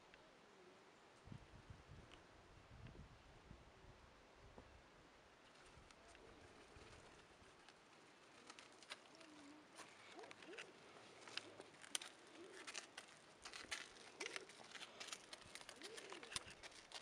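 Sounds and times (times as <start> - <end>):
animal picking at dry ground: 5.4 - 17.0
low cooing calls: 9.0 - 17.0.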